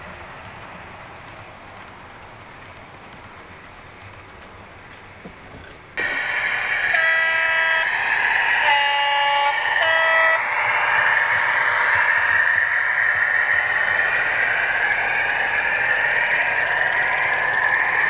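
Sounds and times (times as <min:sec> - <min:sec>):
model locomotive engine sound: 0:06.0 - 0:18.0
locomotive horn blasts: 0:06.9 - 0:07.9, 0:08.7 - 0:10.4.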